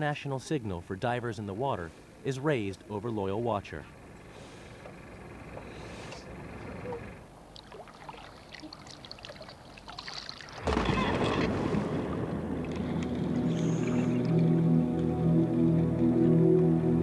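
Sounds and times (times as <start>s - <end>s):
light water noise: 0.0s - 16.7s
diver splashing into water: 6.8s - 14.7s.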